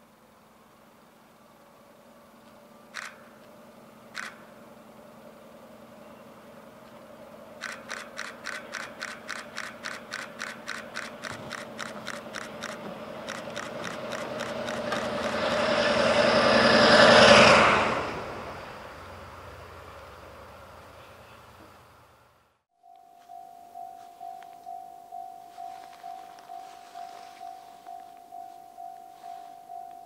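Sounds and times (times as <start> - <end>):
locomotive engine hum: 0.0 - 30.0
sharp clicks: 2.9 - 3.5, 4.1 - 4.6, 7.6 - 15.4
rapid ticking: 7.6 - 15.6.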